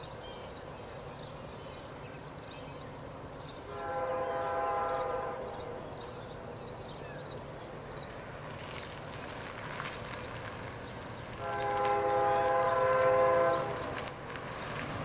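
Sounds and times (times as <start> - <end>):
birds chirping: 0.0 - 9.0
locomotive air horn: 3.6 - 5.6, 11.4 - 13.9.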